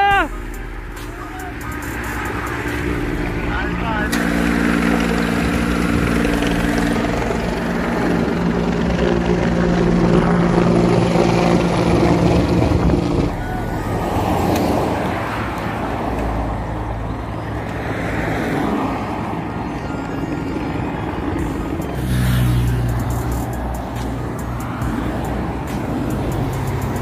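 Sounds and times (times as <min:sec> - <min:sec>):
engine drone: 0:00.0 - 0:27.0
car driving past: 0:21.9 - 0:27.0.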